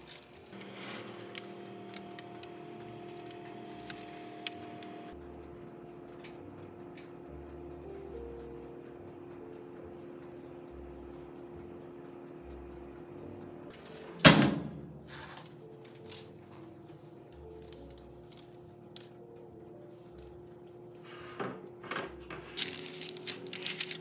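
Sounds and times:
metal baking sheet clanking: 0.0s - 1.8s
faint steady hum: 0.4s - 13.7s.

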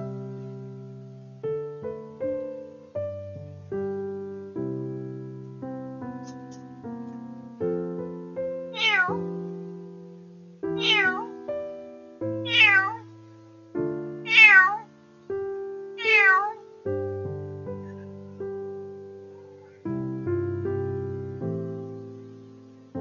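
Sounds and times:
piano background music: 0.0s - 23.0s
cat meowing: 8.7s - 9.4s, 10.8s - 11.5s, 12.4s - 13.1s, 14.2s - 14.9s, 16.0s - 16.7s, 17.8s - 18.5s.

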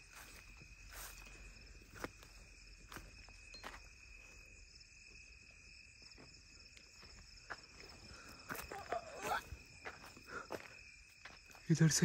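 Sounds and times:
crickets chirring: 0.0s - 12.0s
footsteps on dry stubbly ground: 0.0s - 12.0s.

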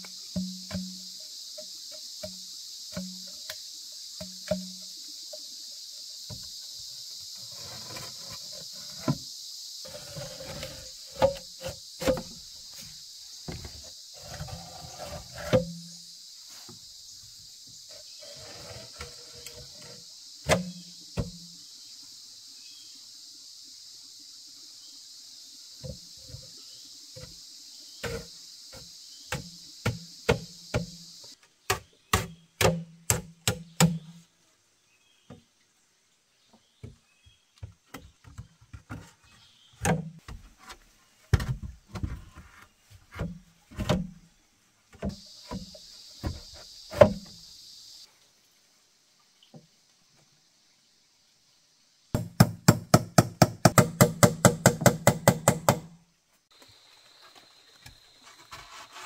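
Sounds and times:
insect chorus: 0.0s - 59.0s
scraping and rustling: 7.4s - 9.2s, 9.8s - 15.6s, 57.0s - 59.0s
sharp knocks: 52.2s - 55.9s.

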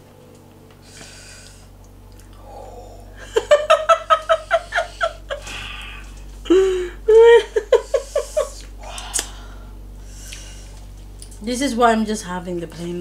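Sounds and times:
person laughing: 3.2s - 8.7s.

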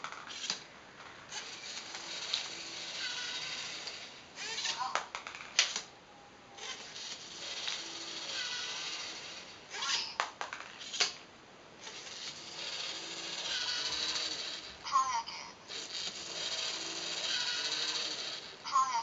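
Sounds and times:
plastic catapult arm clacks: 0.0s - 0.6s, 1.3s - 5.9s, 6.6s - 11.2s
servo motors whirring: 1.3s - 4.9s, 6.6s - 10.1s, 11.8s - 14.8s, 15.7s - 18.9s.

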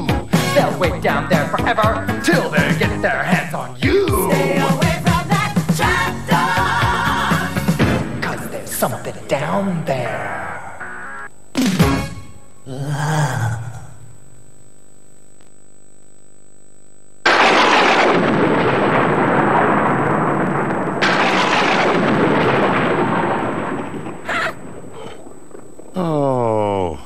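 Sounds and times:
faint hum: 0.0s - 27.0s
thunderclaps rolling into rumble: 17.3s - 26.0s.

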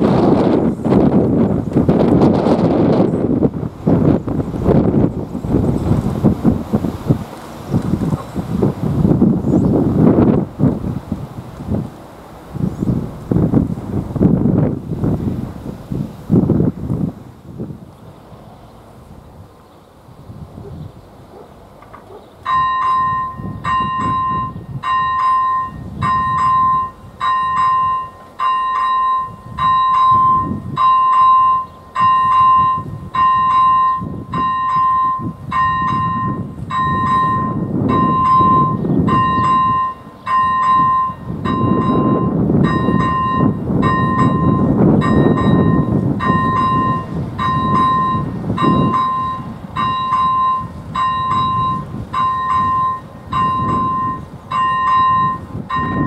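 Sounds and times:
level crossing bell dinging: 22.5s - 56.0s.

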